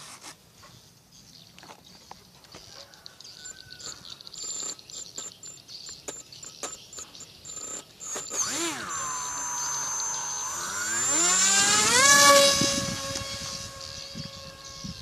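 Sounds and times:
electric motor whine: 6.6 - 15.0.

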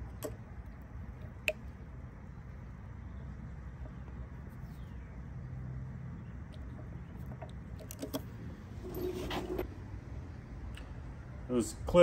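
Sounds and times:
steady low hum: 0.0 - 12.0
metal parts clinking: 7.8 - 9.7.

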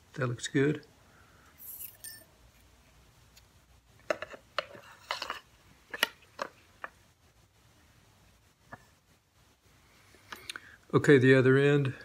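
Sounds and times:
small metal and plastic parts clinking: 1.6 - 2.3.

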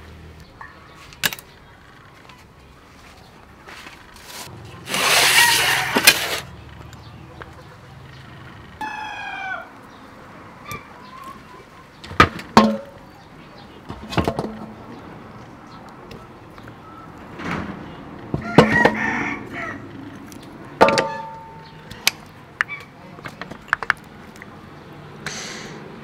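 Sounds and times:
rooster crowing: 5.2 - 6.0, 8.8 - 9.8, 18.4 - 19.9.

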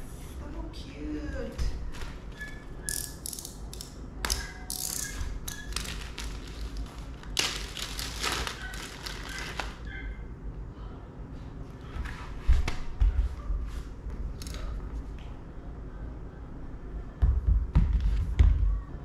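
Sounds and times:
plastic bag crinkling: 5.6 - 9.9.

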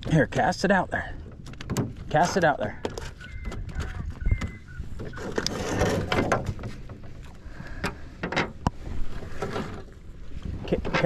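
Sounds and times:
handling knocks and clicks: 1.1 - 7.2.

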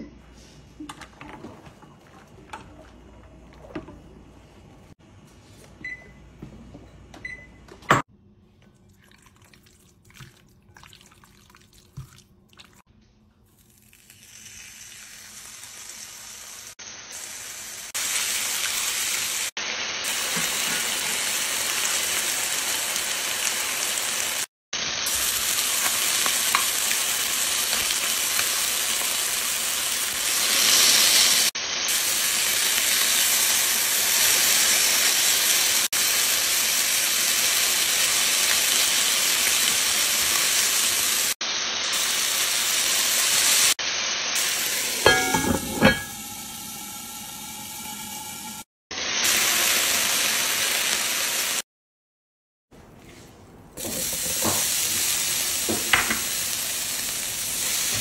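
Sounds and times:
chicken sizzling in a frying pan: 13.7 - 45.2, 46.2 - 51.6, 53.8 - 58.0.

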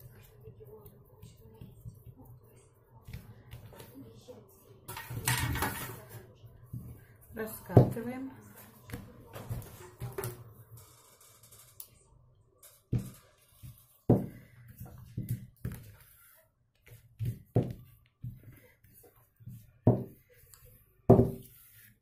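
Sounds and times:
rolling pin rolling and scraping: 12.9 - 22.0
rolling pin thumping on table: 21.1 - 21.5.

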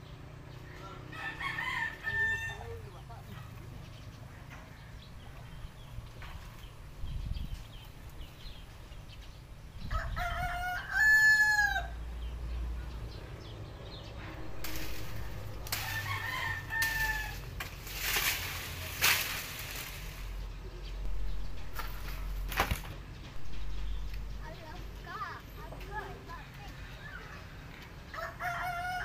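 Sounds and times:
rooster crowing: 1.1 - 2.9, 9.9 - 12.0, 14.4 - 17.6, 28.1 - 29.0
rustling: 14.3 - 20.5.

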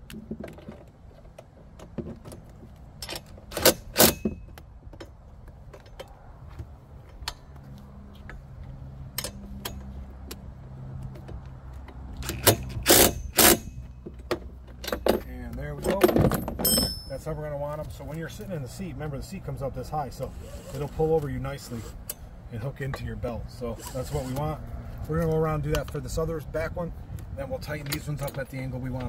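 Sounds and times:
metal clinks: 14.8 - 17.4.

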